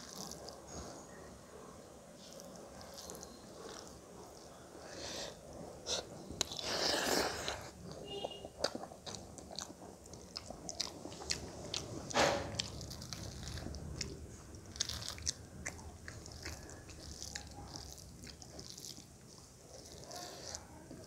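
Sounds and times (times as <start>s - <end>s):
person chewing: 0.0s - 1.1s, 2.2s - 21.0s.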